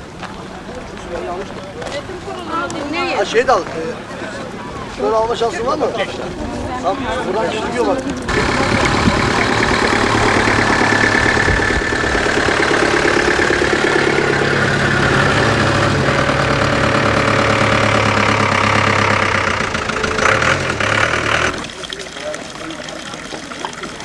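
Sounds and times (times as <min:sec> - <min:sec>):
engine droning: 0:07.3 - 0:24.0.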